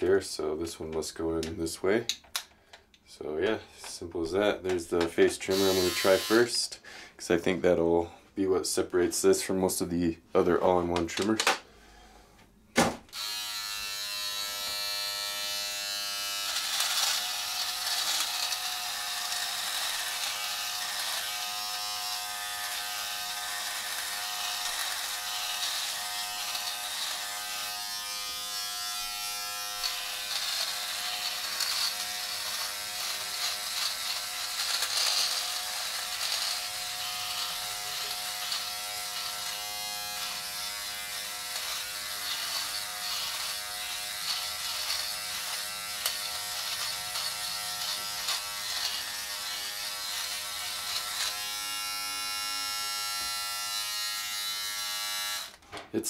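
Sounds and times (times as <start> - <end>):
electric trimmer humming: 5.5 - 6.5, 13.1 - 55.6
trimmer cutting stubble: 13.2 - 55.5.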